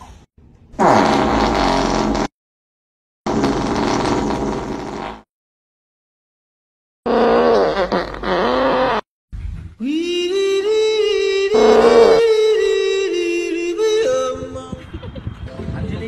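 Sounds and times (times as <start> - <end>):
comic fart sound: 0.8 - 2.4, 3.3 - 5.3, 7.0 - 9.1, 11.5 - 12.4.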